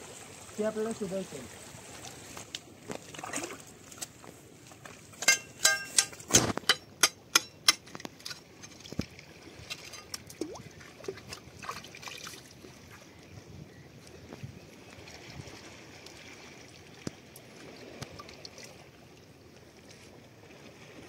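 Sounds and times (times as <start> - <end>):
water trickling: 8.0 - 13.3.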